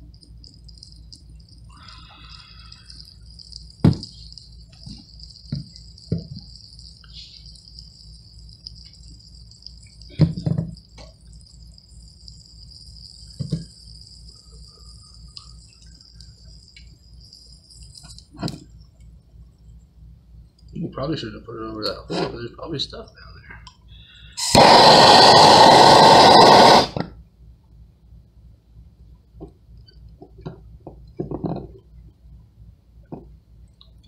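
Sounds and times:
faint high hiss: 0:00.0 - 0:31.1.

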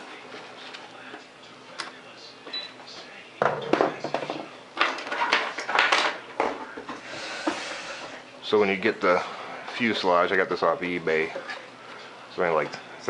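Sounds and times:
knocks and rustles on workbench: 0:03.4 - 0:07.0.

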